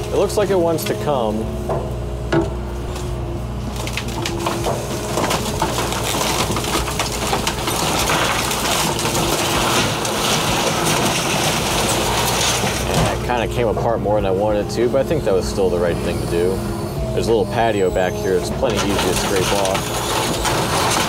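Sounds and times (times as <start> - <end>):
excavator running under load: 0.0 - 21.0
wood splintering and cracking: 2.9 - 13.7, 18.4 - 21.0.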